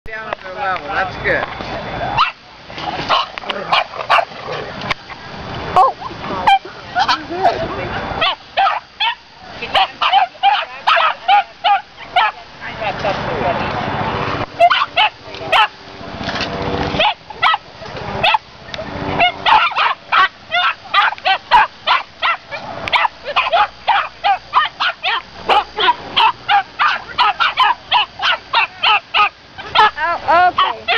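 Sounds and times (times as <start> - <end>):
small dogs yapping: 2.1 - 4.7, 5.8 - 7.3, 8.2 - 12.4, 14.5 - 15.8, 16.9 - 30.9.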